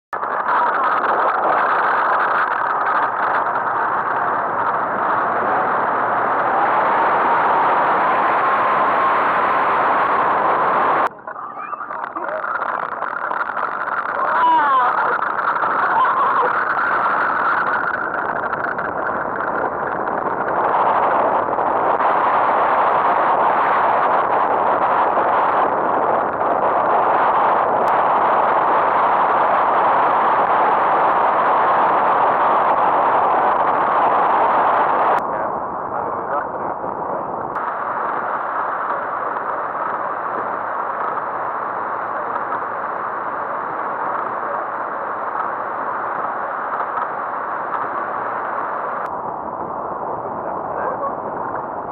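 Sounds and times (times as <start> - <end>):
steady rushing noise: 0.1 - 51.9
wind: 0.1 - 51.9
wheels rattling over ground: 0.2 - 9.0, 9.7 - 33.5
aircraft engine drone: 0.2 - 51.9.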